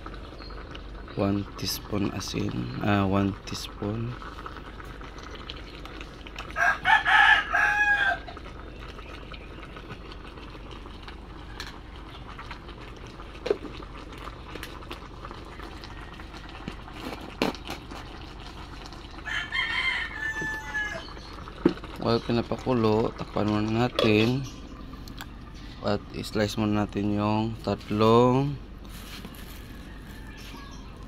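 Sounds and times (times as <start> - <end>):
rooster crowing: 6.6 - 8.4, 19.2 - 21.2, 29.3 - 31.0.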